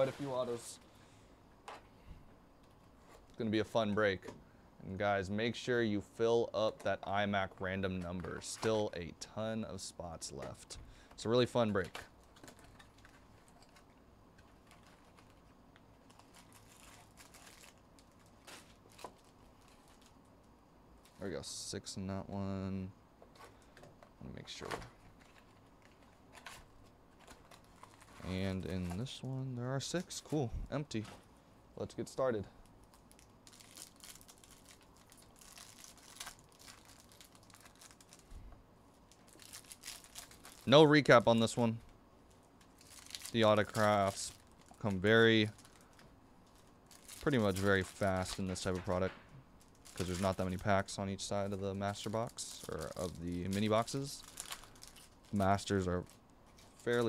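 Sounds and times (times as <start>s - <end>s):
foil packs rustling: 0.0s - 1.1s, 6.6s - 20.2s, 24.4s - 31.3s, 32.3s - 38.3s, 39.0s - 41.8s, 42.6s - 57.0s.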